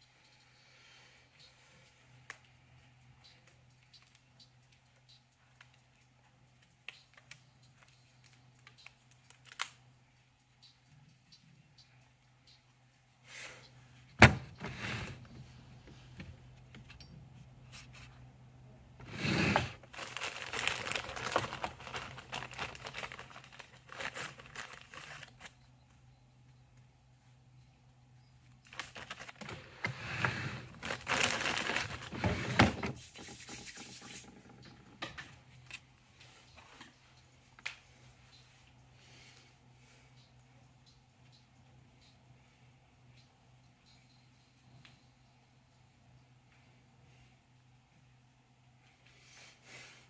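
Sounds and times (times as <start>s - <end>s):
crinkling and tearing material: 19.1s - 25.6s, 28.6s - 29.6s, 30.6s - 32.4s.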